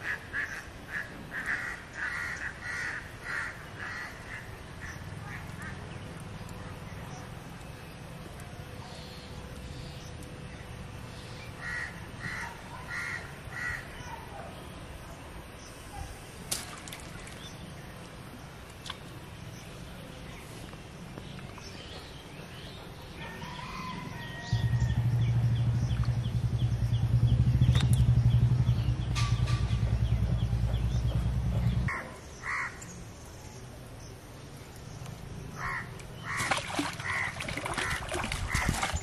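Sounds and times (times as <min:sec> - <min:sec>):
faint outdoor hum: 0:00.0 - 0:39.0
crows cawing: 0:00.3 - 0:04.5, 0:11.6 - 0:13.9, 0:31.9 - 0:32.8, 0:35.6 - 0:38.8
loud steady low drone: 0:24.4 - 0:31.9.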